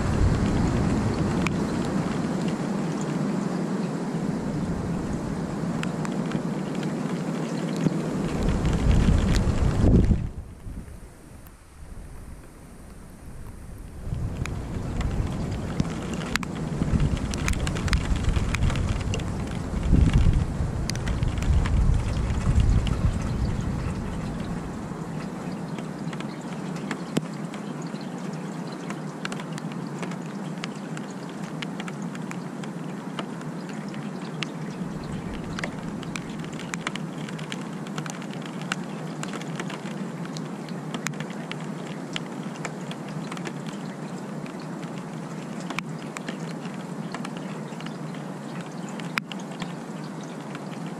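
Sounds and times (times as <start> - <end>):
low thunder rumble: 0.0 - 2.4, 8.0 - 11.1, 13.1 - 25.4
raindrops ticking: 0.0 - 11.6, 12.3 - 50.9
steady rain falling: 0.0 - 50.9.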